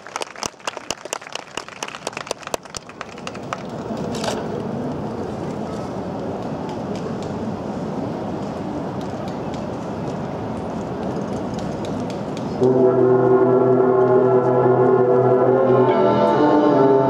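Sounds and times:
background hubbub: 0.0s - 17.0s
brass line held chord: 12.6s - 17.0s.

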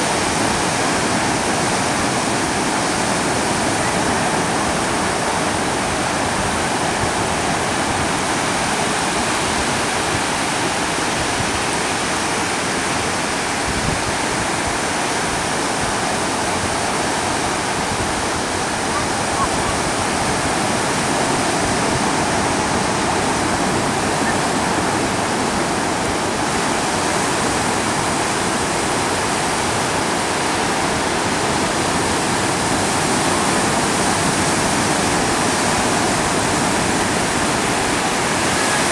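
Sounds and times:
ocean surf breaking: 0.0s - 38.9s.

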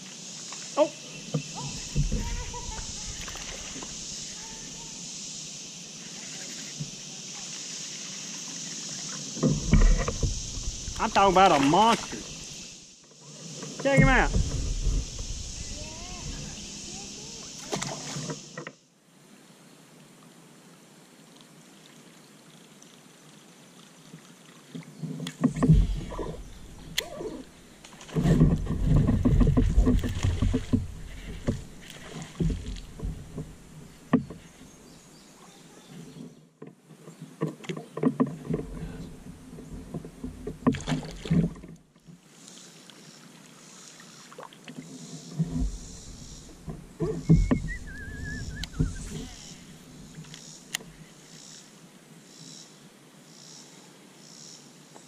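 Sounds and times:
knocks and bumps on plastic kayak: 1.3s - 3.8s, 13.8s - 17.0s, 25.1s - 27.4s, 28.0s - 34.5s, 36.6s - 41.8s, 45.4s - 50.1s.

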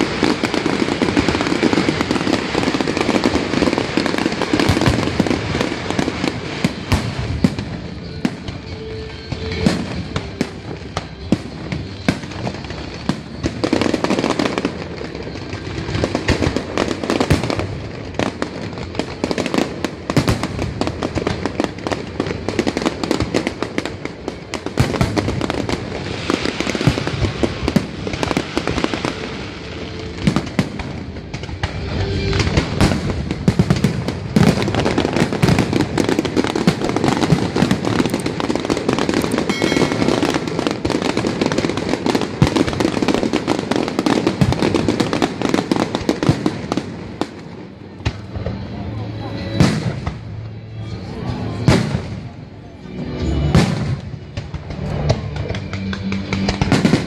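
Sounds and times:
fireworks bangs and crackling: 0.0s - 57.0s
background music: 0.3s - 42.5s, 47.5s - 57.0s.

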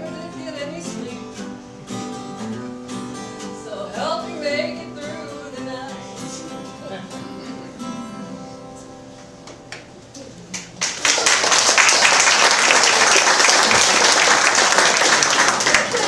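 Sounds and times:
song with acoustic guitar: 0.0s - 10.2s
audience applause: 10.6s - 16.0s.

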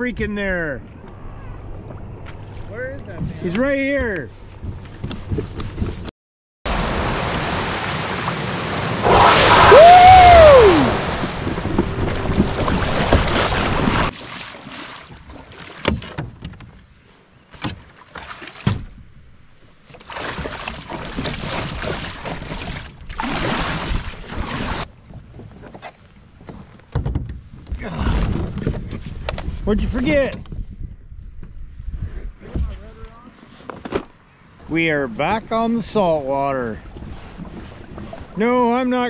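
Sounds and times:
choppy water rushing: 6.7s - 15.9s, 20.0s - 24.9s, 36.6s - 39.0s
wind on microphone: 8.7s - 14.1s, 25.0s - 33.0s
short cry rising and falling: 9.0s - 13.0s
water drips and splashes: 10.4s - 16.0s
kayak paddle knocks: 11.4s - 14.1s.

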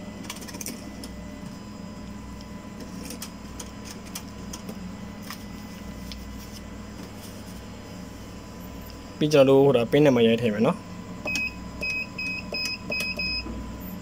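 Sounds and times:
steady electrical hum: 0.0s - 14.0s
card reader mechanical clicks: 11.3s - 13.4s.

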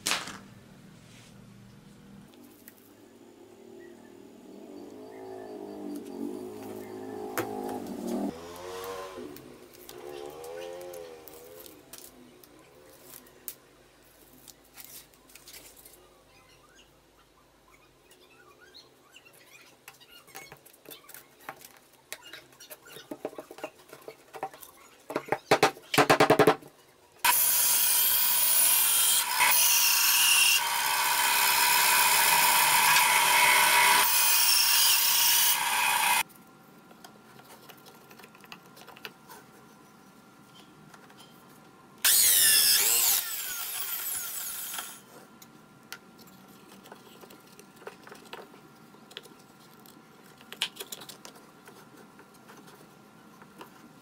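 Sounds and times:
band saw cutting wood: 27.3s - 36.2s, 42.0s - 45.0s.

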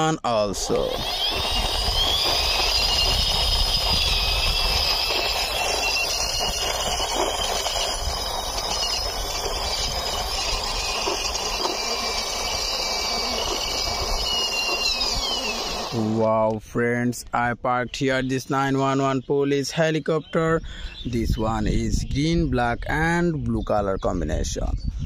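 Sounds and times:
toy helicopter rolling on concrete: 0.6s - 16.1s
high whirring whine: 0.6s - 16.2s.

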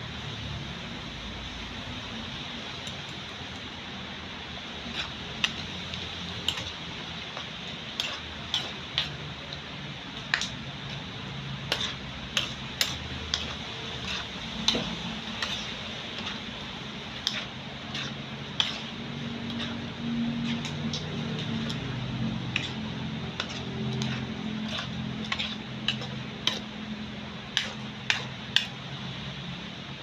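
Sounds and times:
tongs clicking against pot: 10.2s - 16.4s.

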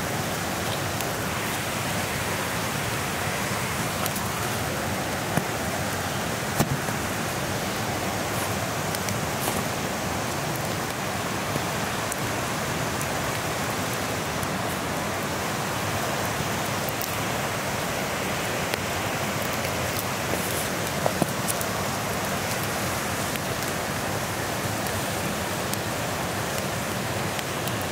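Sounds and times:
creek flowing over stones: 0.0s - 27.9s
wood fire crackling: 0.0s - 27.9s.

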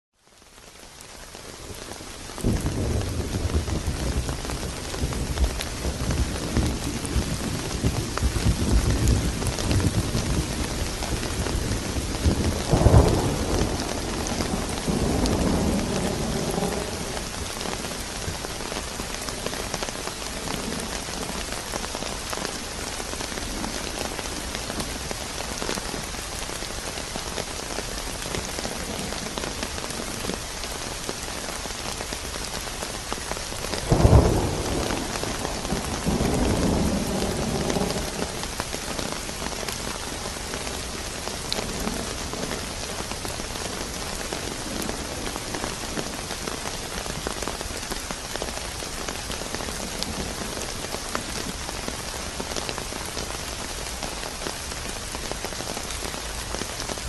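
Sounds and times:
steady rain: 0.1s - 57.0s
thunderclap with rolling rumble: 2.4s - 26.1s, 33.6s - 52.9s.

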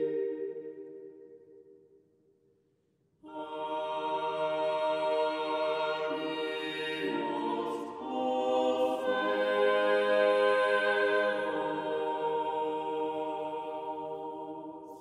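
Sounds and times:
slow choral music: 0.0s - 2.0s, 3.2s - 15.0s.

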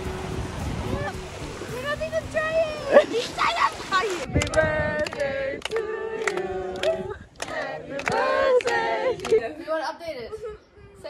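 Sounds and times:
group singing: 4.2s - 9.6s
hand claps: 4.4s - 9.4s.

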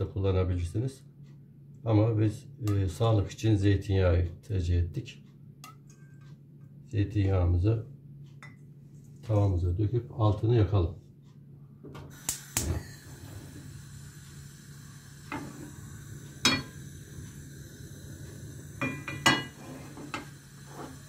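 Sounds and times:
gas flame hissing: 12.0s - 21.0s
gas stove igniter clicks: 12.1s - 20.6s
frying pan knocking on metal grate: 18.8s - 19.6s.

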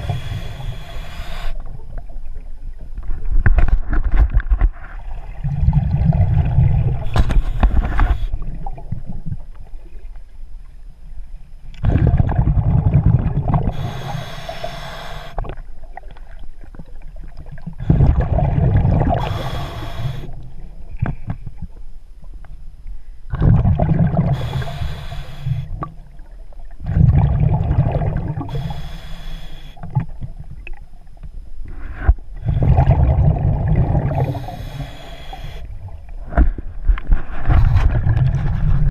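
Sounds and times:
regulator inhalation hiss: 0.0s - 1.6s, 13.7s - 15.5s, 19.1s - 20.4s, 24.3s - 25.8s, 28.4s - 29.9s, 34.1s - 35.8s
exhaled bubbles gurgling underwater: 0.0s - 3.5s, 4.3s - 10.2s, 11.8s - 22.0s, 23.3s - 31.3s, 32.0s - 38.9s.

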